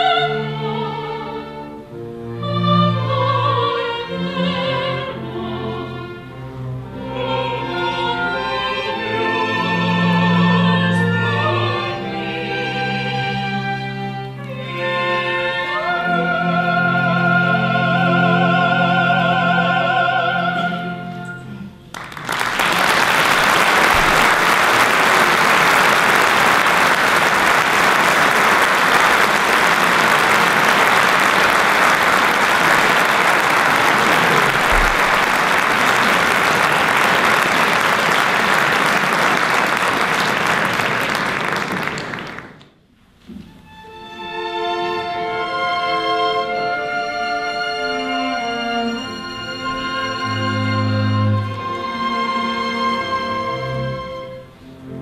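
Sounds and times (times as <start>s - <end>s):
string orchestra: 0.0s - 55.0s
choir: 6.9s - 21.5s
soprano singing with vibrato: 14.4s - 21.6s
audience applauding: 21.9s - 42.7s.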